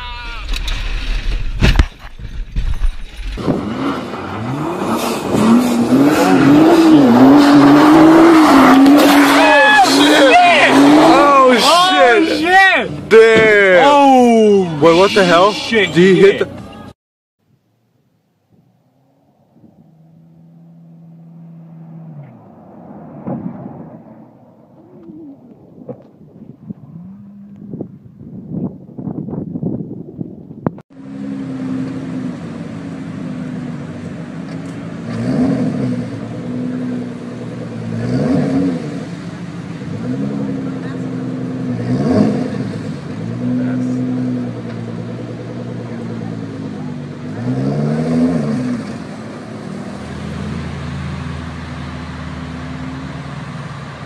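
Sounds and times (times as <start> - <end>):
car engine revving: 3.0 - 14.3, 18.5 - 28.0, 31.0 - 54.0
tyres rushing through snow: 3.0 - 15.3
low rumble: 18.2 - 30.8.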